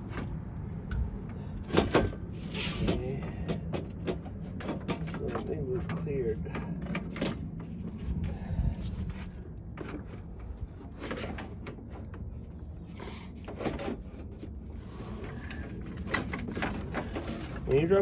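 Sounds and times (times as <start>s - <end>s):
metal knocks and scrapes: 0.0s - 8.4s
low background rumble: 0.0s - 18.0s.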